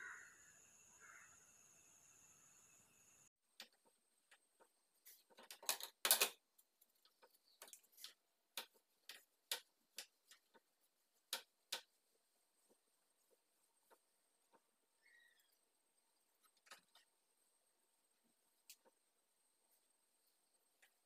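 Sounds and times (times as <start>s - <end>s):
tool tapping and scratching wood: 3.6s - 12.0s.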